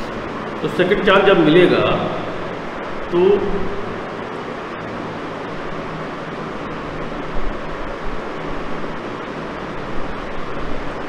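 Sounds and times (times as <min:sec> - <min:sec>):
faint low hum: 0:00.0 - 0:07.6.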